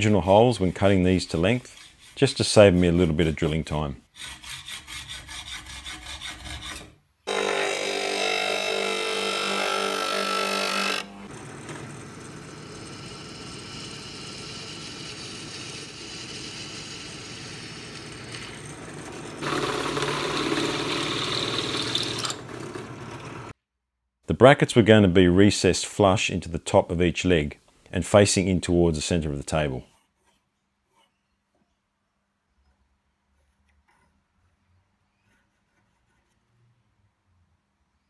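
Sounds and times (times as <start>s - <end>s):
hacksaw cutting steel: 4.2s - 23.3s
drill press drilling steel: 7.3s - 23.5s.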